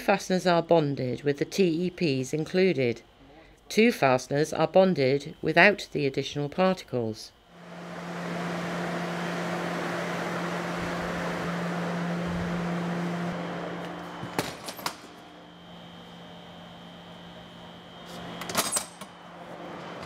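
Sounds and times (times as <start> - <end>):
oven fan humming: 7.5 - 20.0.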